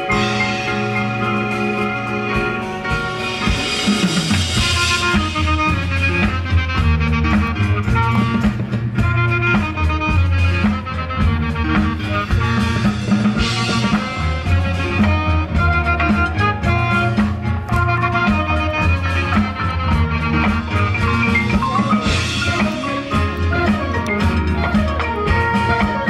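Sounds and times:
brass chords: 0.0s - 26.0s
drums and percussion: 0.0s - 26.0s
marching band playing: 0.0s - 26.0s.

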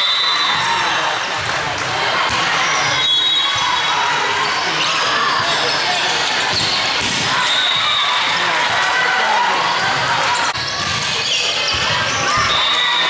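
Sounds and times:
voices of players and spectators: 0.0s - 13.0s
volleyballs struck and bouncing: 1.3s - 2.6s, 6.4s - 9.0s, 9.7s - 12.6s
sneakers squeaking on court floor: 2.3s - 7.9s, 9.8s - 13.0s.

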